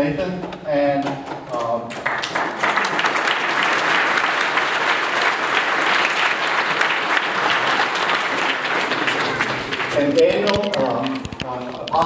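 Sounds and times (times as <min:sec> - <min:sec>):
crowd applauding: 0:01.9 - 0:10.6.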